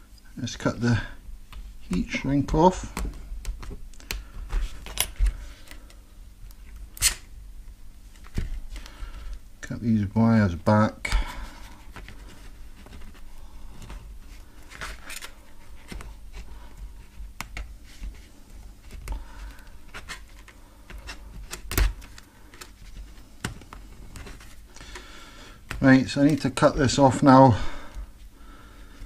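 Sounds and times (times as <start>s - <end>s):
fingers handling thin wires: 11.0s - 27.4s.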